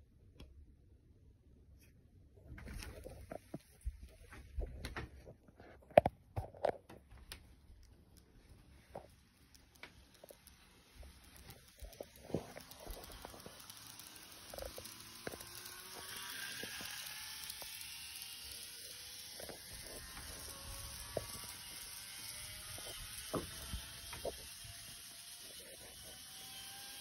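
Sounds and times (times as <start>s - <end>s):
steady hiss: 8.4s - 26.8s
model train motor whine: 8.9s - 27.0s.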